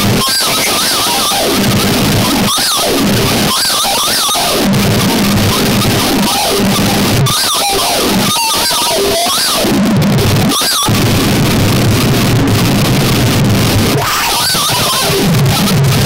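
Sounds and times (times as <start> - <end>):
harsh noise music: 9.2 - 16.0.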